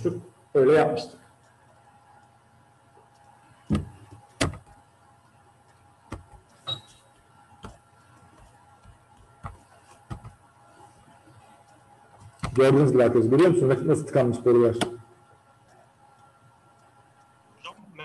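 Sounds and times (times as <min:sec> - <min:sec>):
faint steady hum: 0:00.0 - 0:18.0
sharp knocks and clicks: 0:03.1 - 0:04.8, 0:06.1 - 0:06.7, 0:07.6 - 0:10.4, 0:12.2 - 0:12.6.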